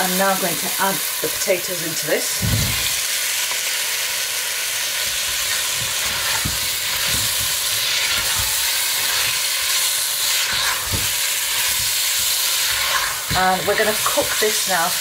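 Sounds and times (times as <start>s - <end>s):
curry sizzling in a pot: 0.0s - 15.0s
spatula stirring with soft knocks: 5.7s - 14.4s.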